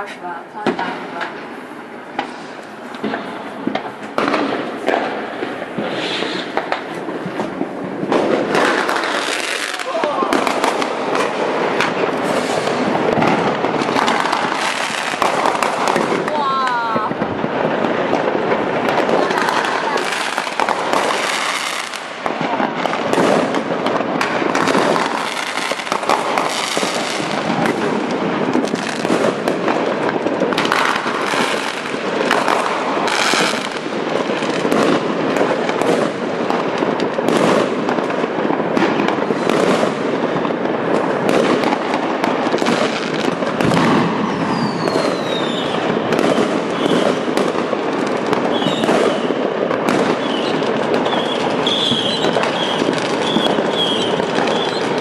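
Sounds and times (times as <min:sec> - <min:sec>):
fireworks crackling and banging: 0:00.0 - 0:55.0
falling firework whistles: 0:05.8 - 0:06.8, 0:43.8 - 0:47.4, 0:48.4 - 0:55.0.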